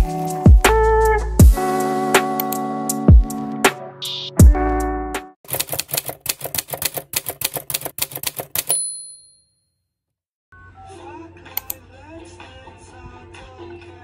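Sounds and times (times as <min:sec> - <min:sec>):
typewriter keystroke clacks: 0:05.5 - 0:08.8
typewriter bell ding: 0:08.1 - 0:09.6.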